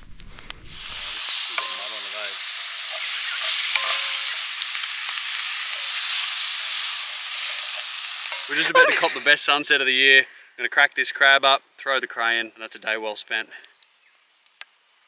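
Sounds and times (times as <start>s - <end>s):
vegetables sizzling in skillet: 0.6s - 9.7s
pan stirred with wooden stick: 0.8s - 8.6s.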